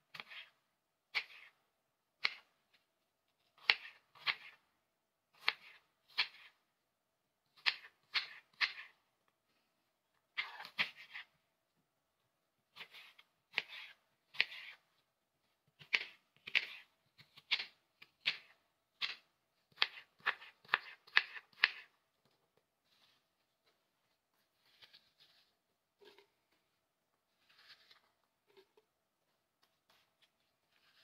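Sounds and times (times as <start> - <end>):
knife slicing apple: 0.1 - 1.6, 2.2 - 2.6, 3.6 - 4.6, 5.4 - 6.6, 7.6 - 9.0, 10.4 - 11.4, 12.7 - 14.9, 15.7 - 22.0, 24.4 - 26.5, 27.3 - 28.9, 29.6 - 31.0.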